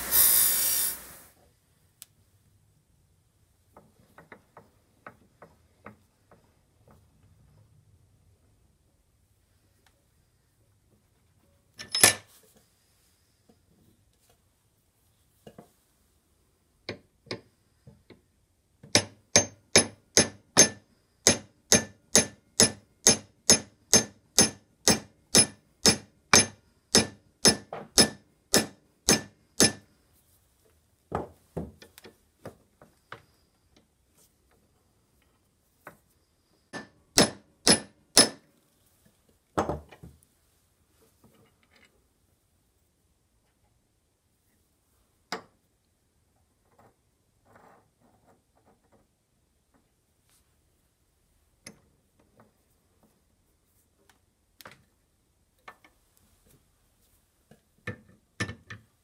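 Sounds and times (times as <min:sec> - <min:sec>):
small hammer tapping metal: 0:18.8 - 0:29.9, 0:36.7 - 0:38.4.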